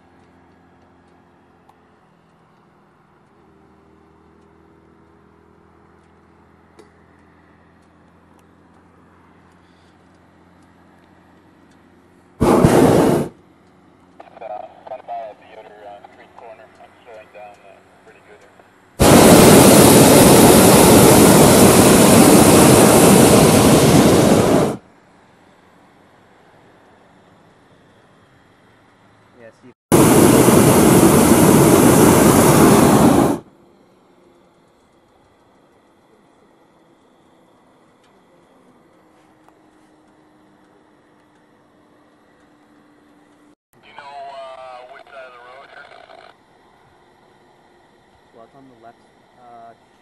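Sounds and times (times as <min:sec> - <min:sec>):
propane burner firing: 0:12.4 - 0:13.4, 0:19.0 - 0:24.8, 0:29.9 - 0:33.5.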